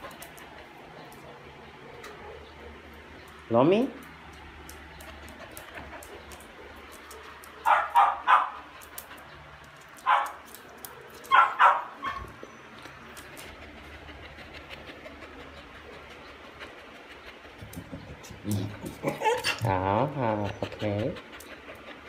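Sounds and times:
dog barking: 0:07.6 - 0:08.6, 0:10.0 - 0:10.4, 0:11.3 - 0:12.3.

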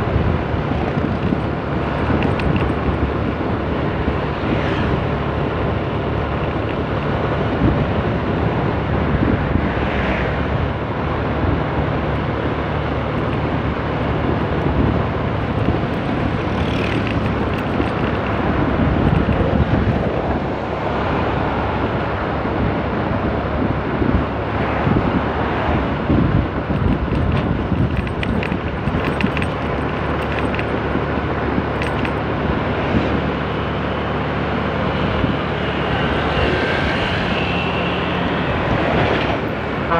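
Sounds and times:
wind rushing past microphone: 0:00.0 - 0:39.9
motorbike engine running: 0:13.1 - 0:20.0, 0:26.7 - 0:33.4.

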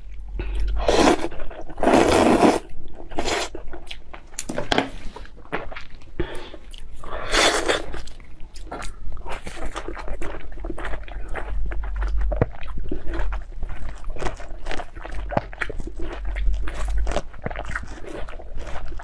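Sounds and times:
slurping noodles: 0:00.8 - 0:03.5, 0:07.2 - 0:08.0
wet chewing: 0:05.5 - 0:19.0.

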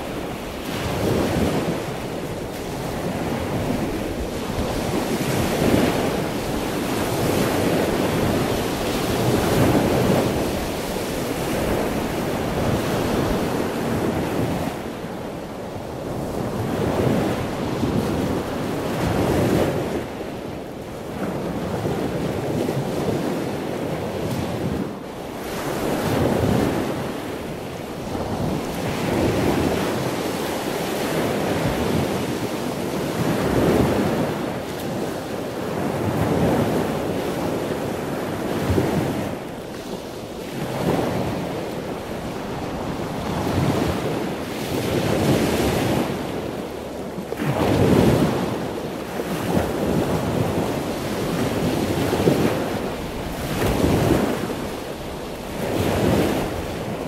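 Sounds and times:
waves breaking on shore: 0:00.0 - 0:57.0.

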